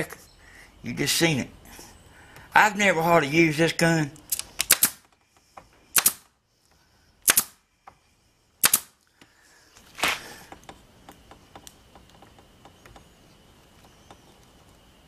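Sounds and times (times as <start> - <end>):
nailer air pops: 4.3 - 5.1, 5.9 - 6.3, 7.2 - 7.6, 8.6 - 9.0.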